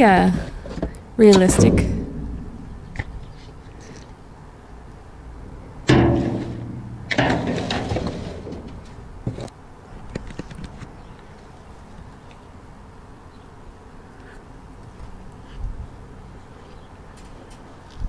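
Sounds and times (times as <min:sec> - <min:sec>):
knock on metal dumpster: 0:01.5 - 0:03.2, 0:05.9 - 0:09.0.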